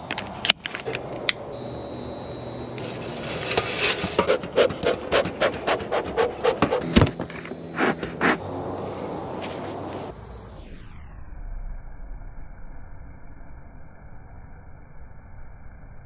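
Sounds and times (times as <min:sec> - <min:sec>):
bellows puffing: 0:02.8 - 0:08.5.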